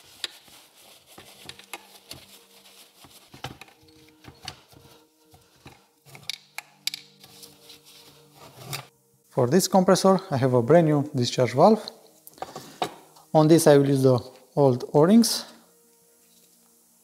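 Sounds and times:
cloth wiping: 0.0s - 5.6s, 7.2s - 8.8s.

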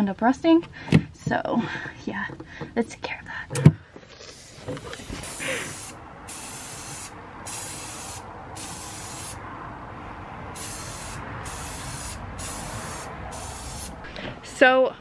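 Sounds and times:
spray paint can spraying: 4.3s - 9.4s, 10.5s - 14.0s.

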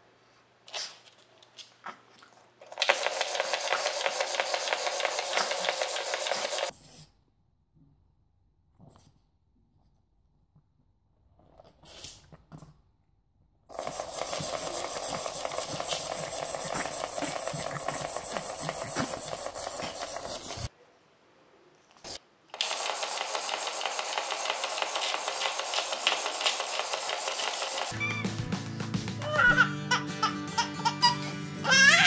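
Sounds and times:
wind-up toy whirring: 2.8s - 6.7s, 13.7s - 20.7s, 22.6s - 28.1s.

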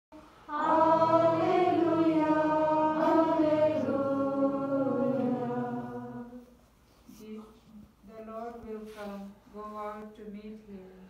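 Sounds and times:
voices singing a slow chant: 0.4s - 6.7s.

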